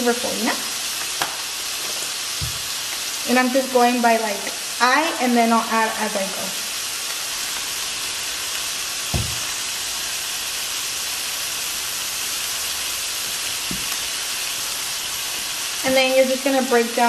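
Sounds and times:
meat sizzling in a frying pan: 0:00.0 - 0:17.0
soft thumps: 0:02.4 - 0:02.7, 0:09.1 - 0:09.5.

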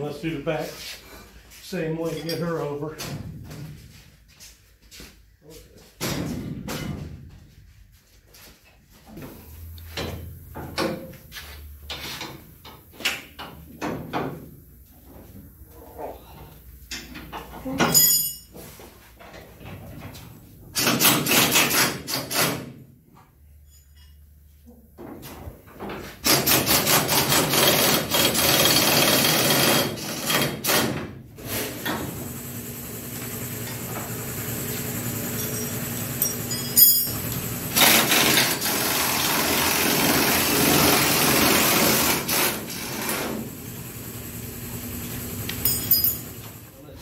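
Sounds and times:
pneumatic wrench running: 0:20.8 - 0:22.7, 0:26.2 - 0:46.6.

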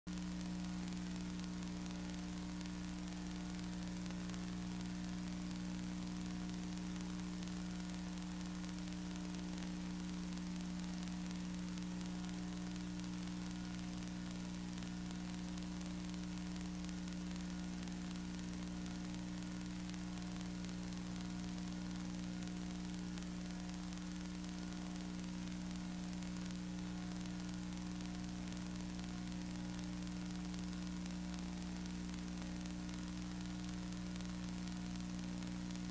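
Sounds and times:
electrical hum: 0:00.1 - 0:35.9.

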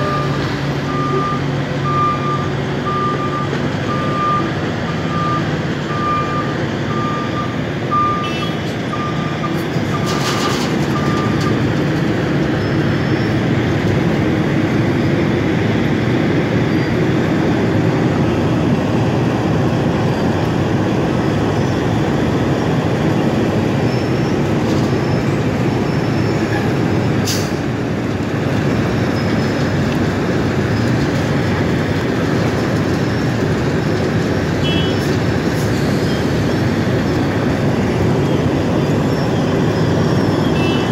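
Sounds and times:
reversing beeper: 0:00.0 - 0:11.6.

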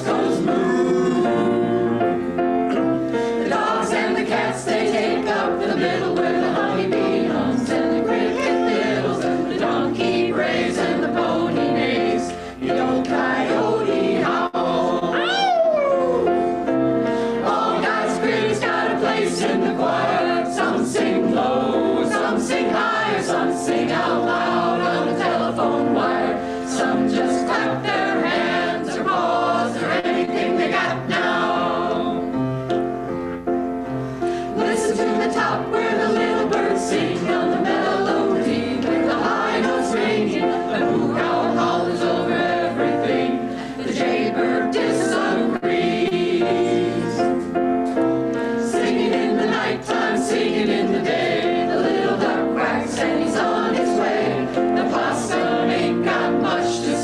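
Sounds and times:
mixed choir singing: 0:00.0 - 0:32.5, 0:34.2 - 0:57.0.

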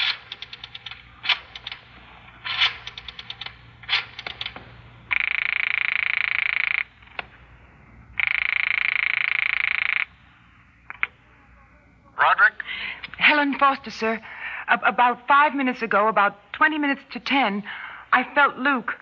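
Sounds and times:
rotary dial clicking: 0:00.0 - 0:01.8, 0:02.6 - 0:06.7
buzzing telephone ring tones: 0:05.1 - 0:07.0, 0:08.2 - 0:10.1.

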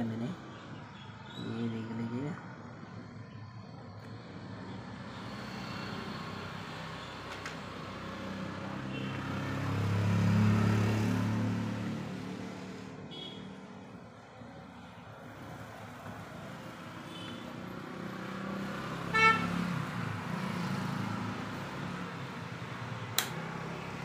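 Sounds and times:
motor vehicle passing by: 0:04.0 - 0:13.1, 0:14.7 - 0:24.0.

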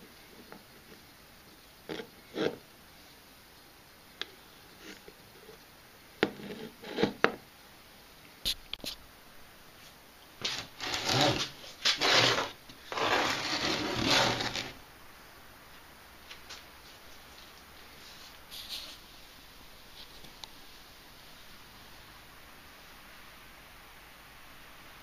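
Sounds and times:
wooden box scraping on workbench: 0:06.2 - 0:07.4, 0:10.4 - 0:14.8.

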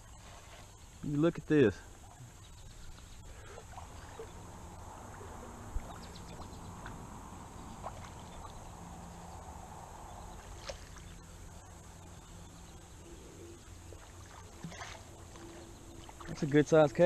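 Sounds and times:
faint water noise: 0:00.0 - 0:17.0.

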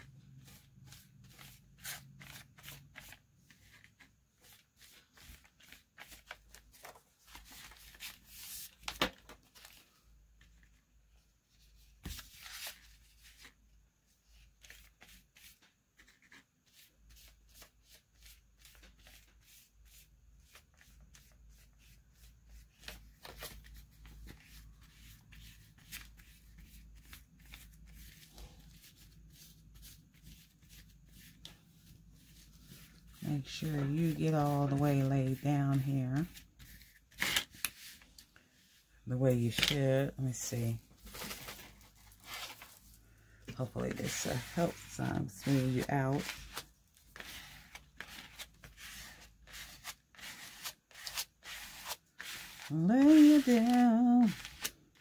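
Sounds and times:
paper rustling and crinkling: 0:00.4 - 0:10.8, 0:11.6 - 0:13.6, 0:20.4 - 0:38.6, 0:40.7 - 0:55.0
glue brush on paper: 0:24.4 - 0:37.0, 0:43.6 - 0:46.6, 0:48.8 - 0:54.4.

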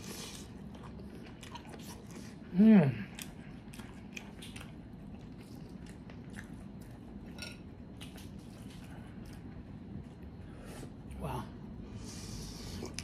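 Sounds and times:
wet chewing: 0:00.0 - 0:10.4.

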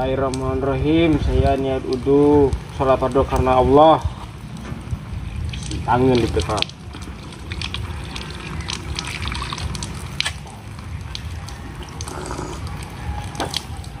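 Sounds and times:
small drips and clicks: 0:00.2 - 0:14.0
water running from a tap: 0:05.5 - 0:14.0
water splashing over hands: 0:05.5 - 0:14.0.

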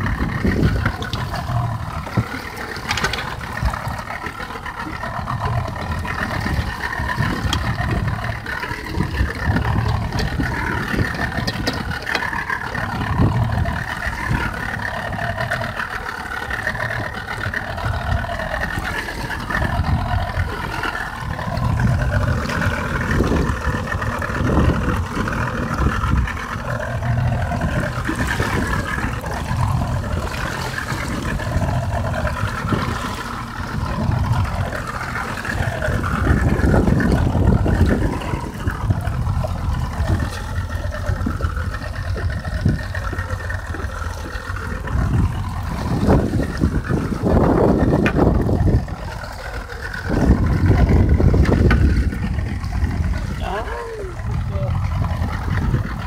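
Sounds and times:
low rumble: 0:00.0 - 0:56.0
outboard motor running: 0:00.0 - 0:56.0.

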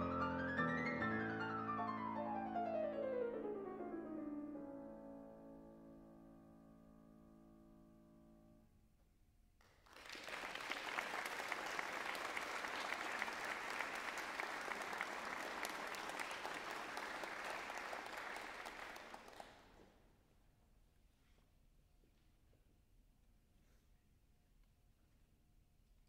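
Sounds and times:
piano chord: 0:00.0 - 0:08.6
audience applause: 0:09.8 - 0:19.8.

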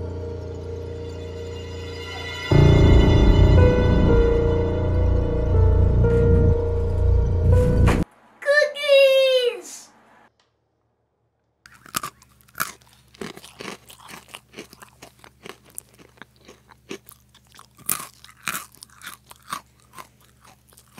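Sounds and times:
crunching and chewing cookies: 0:11.7 - 0:20.9.

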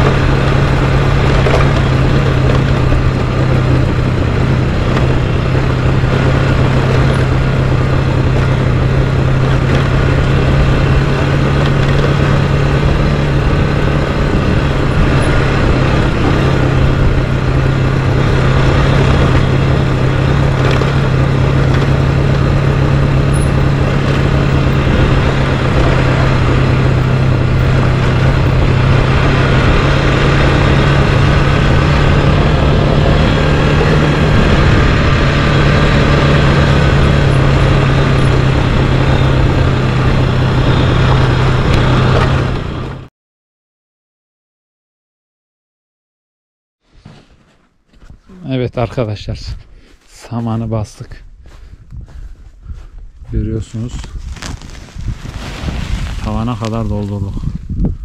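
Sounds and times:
gravel noise: 0:00.0 - 0:43.1, 0:46.9 - 0:58.0
motorcycle engine droning: 0:00.0 - 0:43.1
wind noise: 0:00.0 - 0:43.1, 0:48.0 - 0:58.0.

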